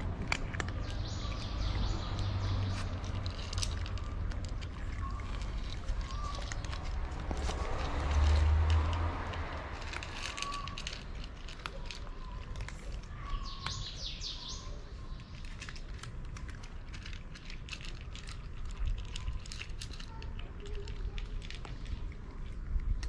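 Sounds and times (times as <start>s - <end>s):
cats crunching dry kibble: 0.0s - 23.0s
bird chirping: 0.8s - 4.2s, 4.9s - 8.0s, 13.1s - 15.5s.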